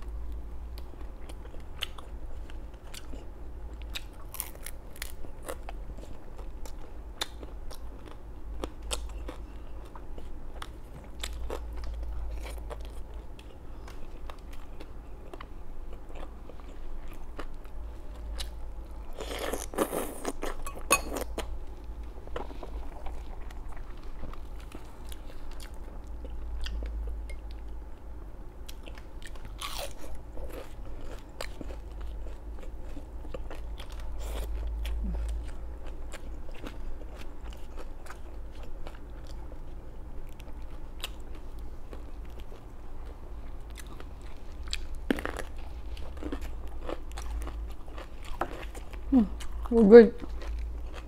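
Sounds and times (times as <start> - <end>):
low constant hum: 0.0 - 51.0
crunching crispy food: 3.8 - 5.7.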